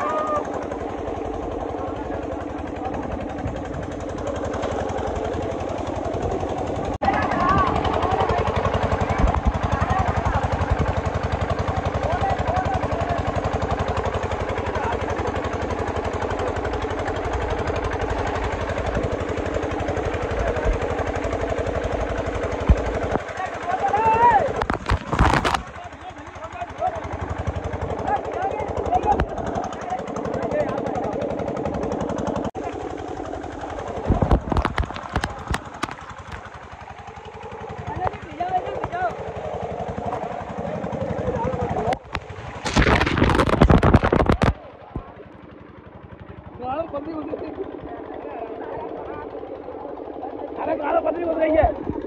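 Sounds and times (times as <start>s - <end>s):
water gushing and splashing: 0.0s - 28.2s, 32.6s - 45.2s
pump engine running: 0.0s - 52.0s
water pouring from pipe: 24.5s - 25.8s, 42.0s - 44.6s.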